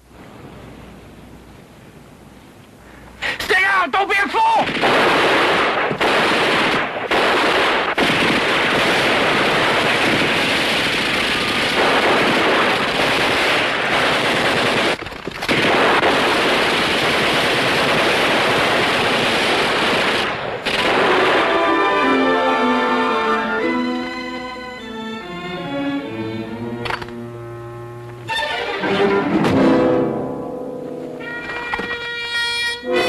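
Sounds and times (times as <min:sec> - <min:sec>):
machine gun firing: 0:04.6 - 0:22.0.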